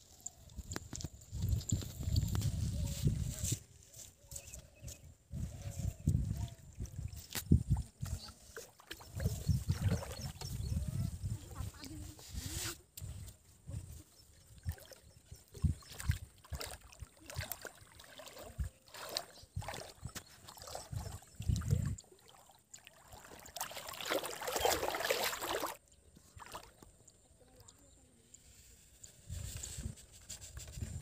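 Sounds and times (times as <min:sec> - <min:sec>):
water splashing while wading: 0:06.4 - 0:10.8, 0:14.4 - 0:25.8, 0:26.4 - 0:26.8.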